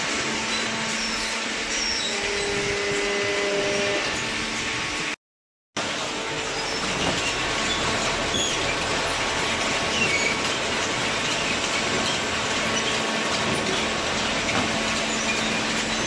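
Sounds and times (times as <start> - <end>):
high squeaks: 6.4 - 8.8
chain conveyor metallic rattle: 6.6 - 16.0.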